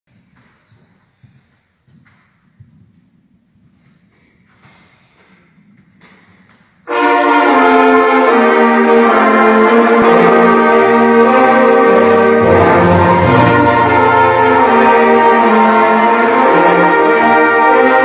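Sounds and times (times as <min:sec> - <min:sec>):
low brass notes: 0:06.8 - 0:18.0
concert band sustained chord: 0:06.9 - 0:18.0.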